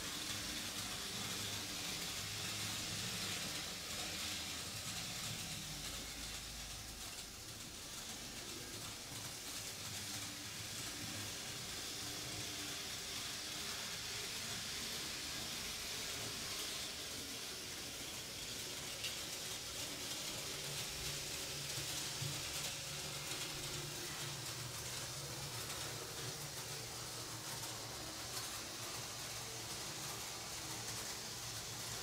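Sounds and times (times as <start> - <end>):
model train wheels rolling on rails: 0.0 - 32.0.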